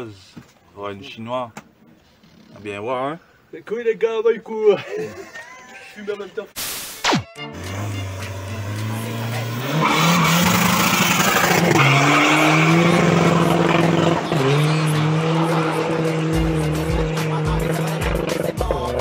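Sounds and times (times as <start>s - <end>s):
diesel engine accelerating hard: 7.6s - 19.0s.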